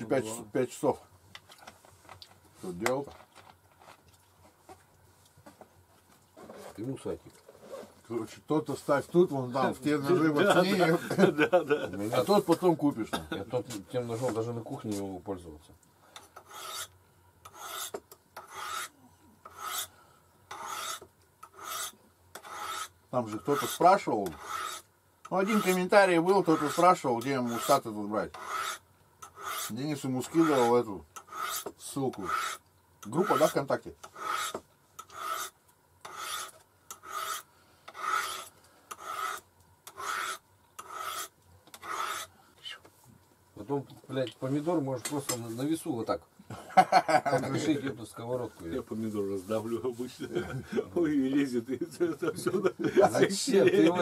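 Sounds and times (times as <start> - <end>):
knife scraping on honing steel: 16.4 - 19.9, 20.5 - 42.3.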